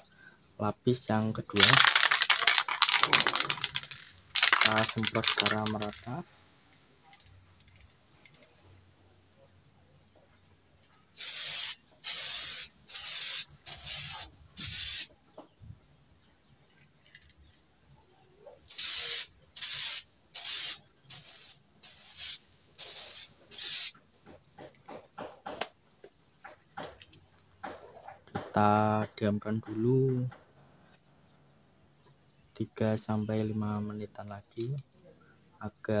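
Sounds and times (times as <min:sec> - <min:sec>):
spray can hissing: 0:01.7 - 0:06.0, 0:11.2 - 0:15.1, 0:18.7 - 0:24.0.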